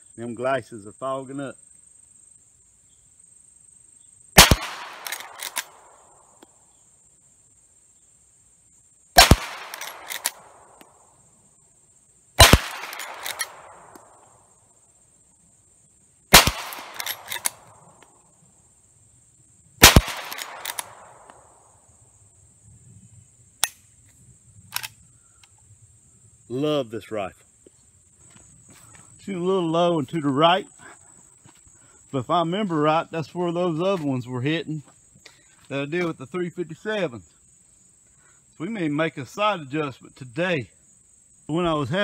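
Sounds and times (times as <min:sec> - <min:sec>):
rifle lever clacking: 0:04.4 - 0:05.7, 0:09.2 - 0:10.4, 0:12.5 - 0:14.0, 0:16.4 - 0:17.6, 0:19.9 - 0:20.9
rifle shots: 0:04.4 - 0:06.0, 0:09.2 - 0:10.8, 0:12.4 - 0:14.2, 0:16.3 - 0:17.8, 0:19.8 - 0:21.5.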